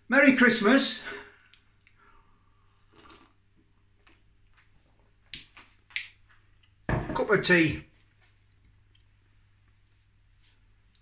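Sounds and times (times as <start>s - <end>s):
man sipping and swallowing: 1.4s - 5.0s.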